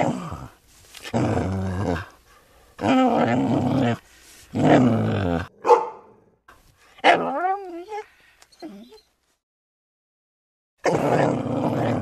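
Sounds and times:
dog growling: 0.0s - 2.2s, 2.8s - 5.6s, 10.8s - 12.0s.

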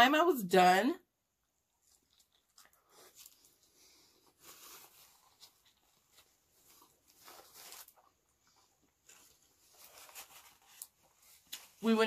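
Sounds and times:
chewing and mouth sounds: 1.5s - 3.6s.

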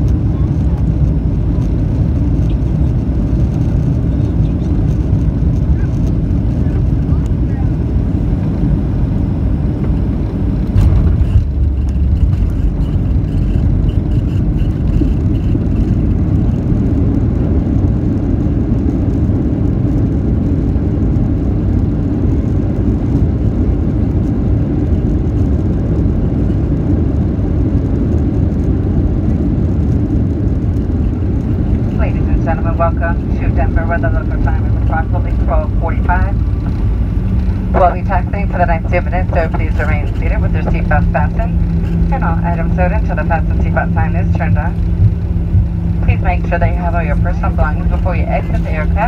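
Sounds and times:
jet engine roar: 0.0s - 49.0s
airliner wheels touching down: 8.0s - 16.7s.

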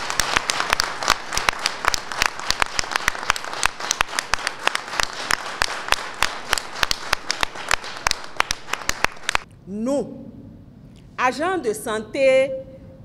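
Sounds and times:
small group applauding: 0.0s - 9.5s.

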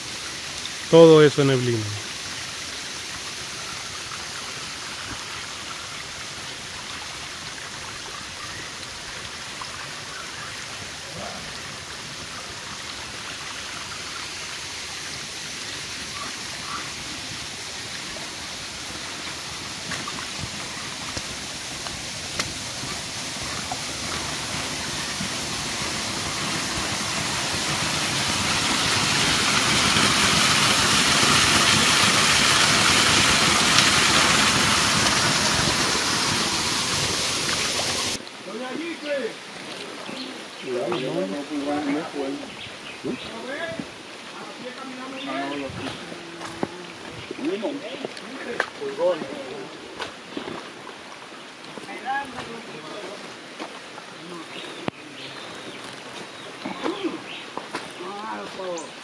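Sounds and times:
rain falling: 0.0s - 42.4s.

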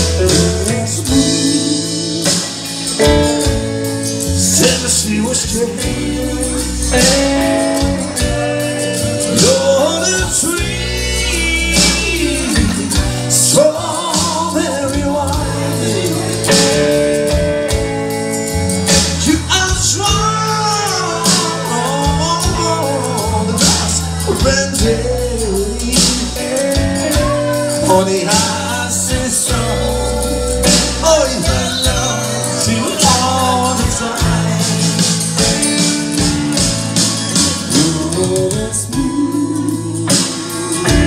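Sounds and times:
man singing into a microphone: 0.0s - 17.8s, 18.9s - 36.0s, 37.5s - 41.0s
electric guitar: 0.0s - 41.0s
steady bass line: 0.0s - 41.0s.

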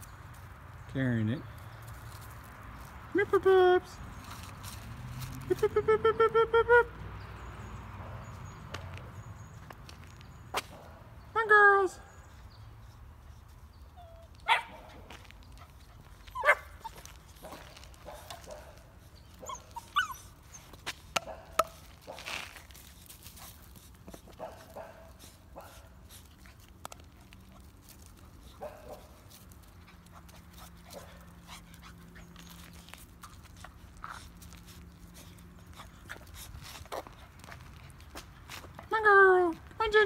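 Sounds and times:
light clicks and scuffs: 4.0s - 5.7s, 8.3s - 10.8s, 12.7s - 38.9s
puppies yelping and squeaking: 15.7s - 17.5s, 19.2s - 21.0s.

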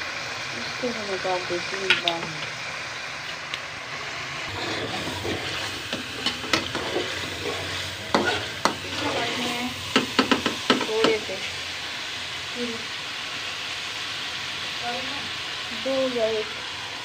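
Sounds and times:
onions sizzling in pan: 0.0s - 17.0s
metal spoon scraping pan: 4.5s - 11.2s.

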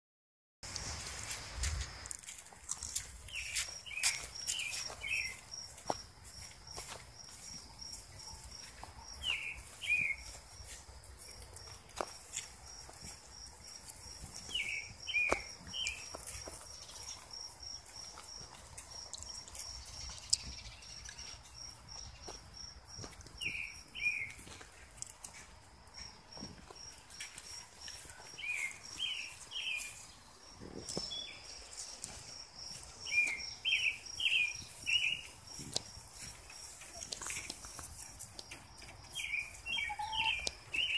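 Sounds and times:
short high bird chirps: 39.2s - 40.9s.

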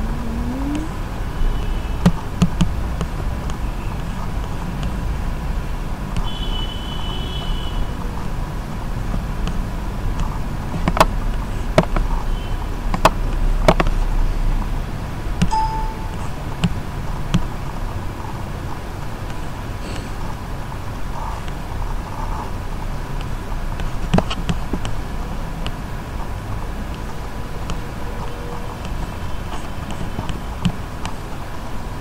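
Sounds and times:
faint high tone: 0.0s - 1.0s, 15.5s - 16.4s.

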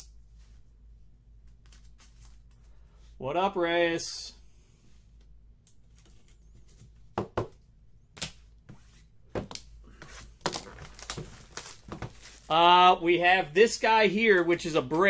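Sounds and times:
boxes knocking on tabletop: 7.2s - 7.6s.

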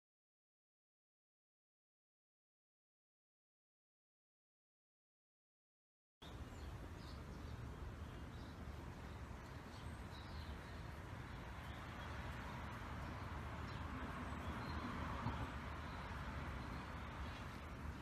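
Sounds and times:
low rumble and hiss: 6.2s - 18.0s.

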